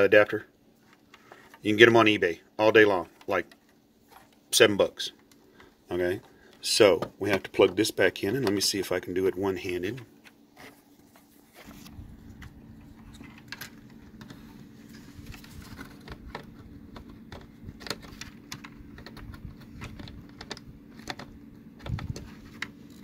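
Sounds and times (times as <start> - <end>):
low steady hum: 0.0 - 23.0
plastic clicks and rubbing: 10.2 - 23.0.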